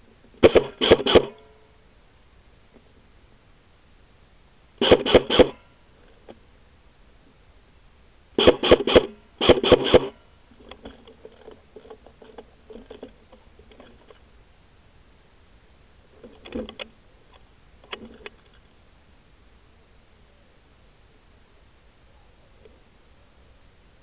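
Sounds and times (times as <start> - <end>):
airsoft guns firing: 0.4 - 1.4.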